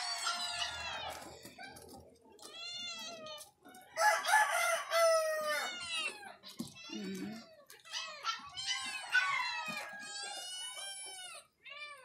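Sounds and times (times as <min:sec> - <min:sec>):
rooster crowing: 0:04.0 - 0:05.8.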